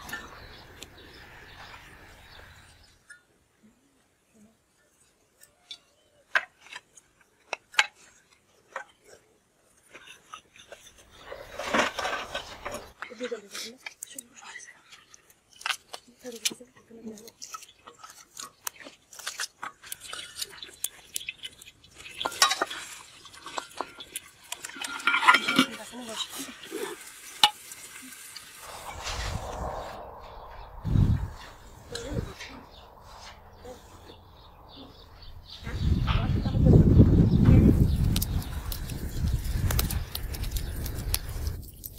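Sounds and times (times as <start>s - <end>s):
metal spoon scraping bowl and pot: 22.2s - 27.7s.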